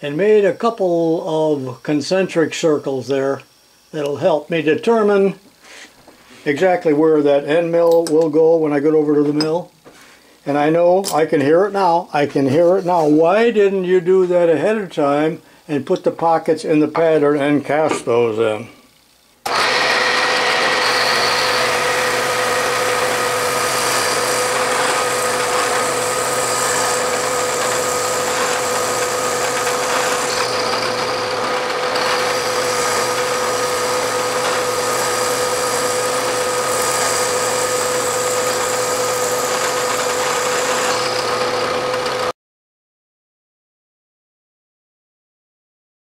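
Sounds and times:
milling machine hum: 19.4s - 42.3s
cutter cutting metal: 19.5s - 42.3s.

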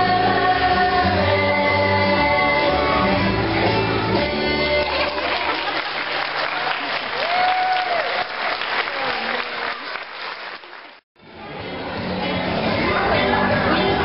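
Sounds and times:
audience applause: 4.8s - 11.0s.

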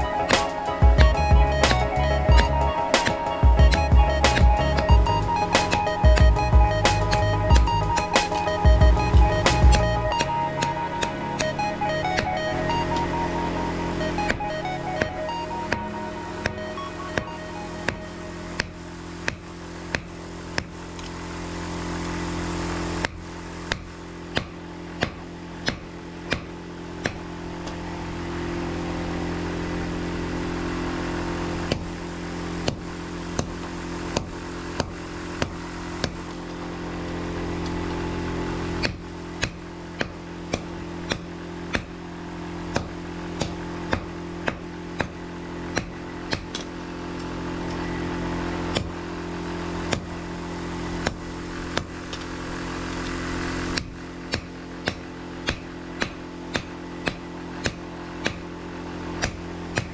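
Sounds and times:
motor drone: 0.0s - 59.9s
hammer striking steel: 0.2s - 13.4s, 15.0s - 21.2s, 23.0s - 27.8s, 38.8s - 42.0s, 42.6s - 46.7s, 48.7s - 49.0s, 49.9s - 50.1s, 51.0s - 52.3s, 53.7s - 58.5s, 59.2s - 59.9s.

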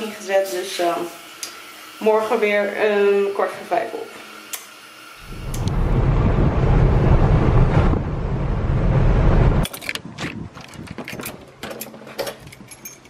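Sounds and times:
loud low rumble: 5.2s - 9.6s
keys jangling in door lock: 10.6s - 13.0s.

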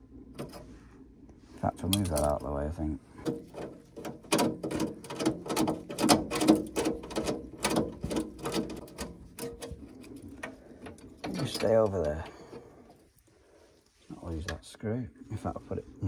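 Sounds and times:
plastic and metal parts clattering: 1.8s - 13.1s.

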